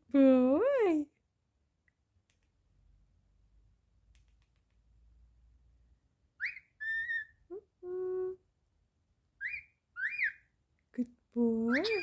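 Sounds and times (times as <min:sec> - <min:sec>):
cockatiel whistling: 0:06.4 - 0:07.4, 0:09.4 - 0:10.4.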